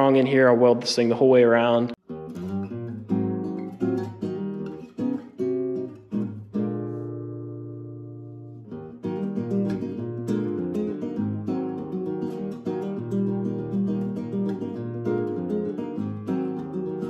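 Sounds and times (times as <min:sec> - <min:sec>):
acoustic guitar strumming: 0:01.6 - 0:17.0.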